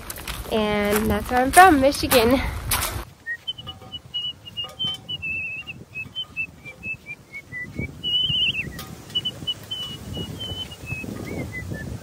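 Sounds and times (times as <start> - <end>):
person whistling a tune: 3.2 - 12.0.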